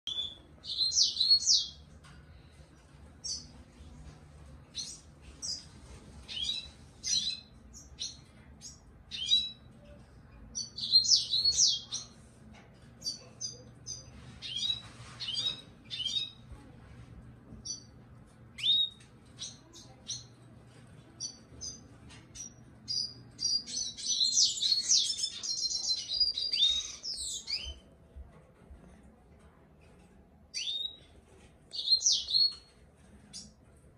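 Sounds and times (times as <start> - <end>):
canary chirping and singing: 0.1 - 2.0, 4.6 - 12.3, 12.9 - 16.6, 17.6 - 20.4, 21.0 - 27.9, 30.5 - 33.6.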